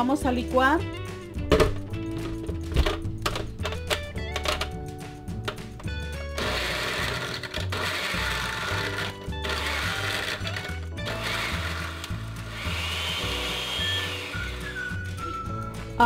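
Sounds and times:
background music with bass line: 0:00.0 - 0:16.0
blender crushing ice: 0:06.4 - 0:15.0.

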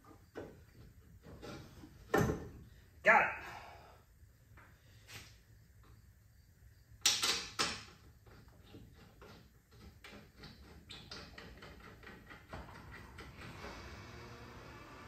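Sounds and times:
metal knocks and clicks: 0:07.0 - 0:13.4.

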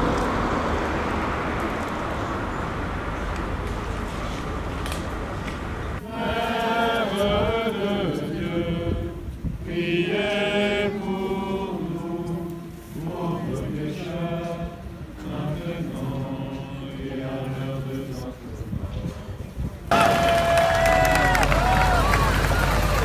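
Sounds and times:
crowd singing slow notes: 0:06.0 - 0:19.2.

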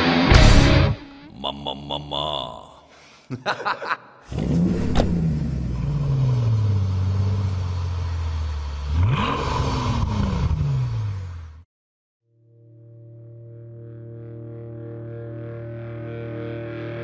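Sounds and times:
vehicle engine running: 0:04.3 - 0:11.6.

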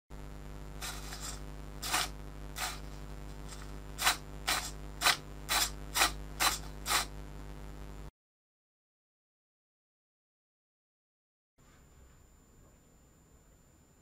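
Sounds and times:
steady low hum: 0:00.1 - 0:08.1, 0:11.6 - 0:14.0
servo whirring: 0:00.8 - 0:07.1.

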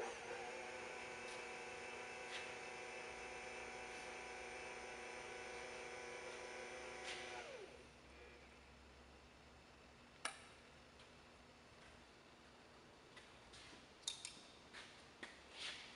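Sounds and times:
electric motor whine: 0:00.0 - 0:07.8.

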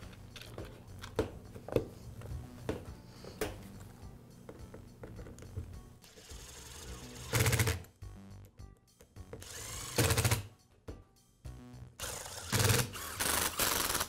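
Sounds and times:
impact driver driving screws: 0:12.0 - 0:14.0.

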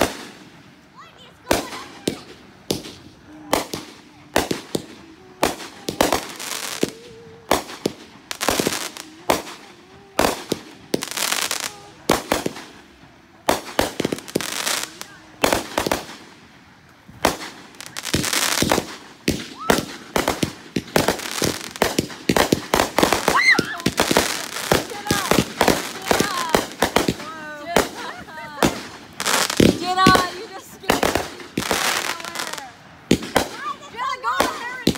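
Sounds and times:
fireworks bangs: 0:00.0 - 0:34.9
fireworks crackling: 0:00.0 - 0:34.9.

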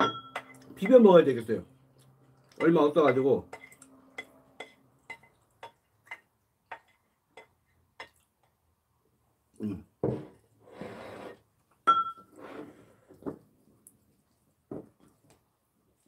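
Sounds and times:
crockery clinking: 0:00.0 - 0:01.2, 0:02.6 - 0:08.2, 0:11.8 - 0:12.4
metal spoon scraping ceramic plate: 0:02.6 - 0:07.5
plate knocking on wooden table: 0:10.0 - 0:10.3.

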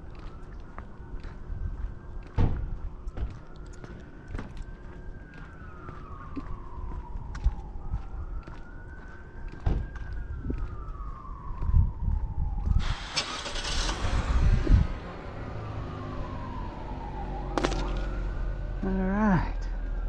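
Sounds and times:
emergency siren wailing: 0:00.0 - 0:20.0
street traffic: 0:00.0 - 0:20.0
passing car rush: 0:12.8 - 0:18.8.

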